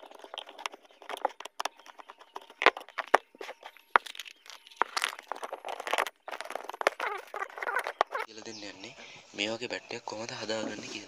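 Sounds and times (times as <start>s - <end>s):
plastic casing being pried apart: 0.0s - 8.3s.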